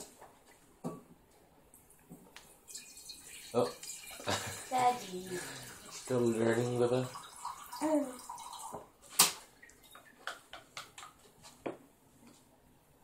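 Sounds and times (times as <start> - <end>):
high voice sound: 4.7 - 5.5
wet smack: 9.2 - 9.4.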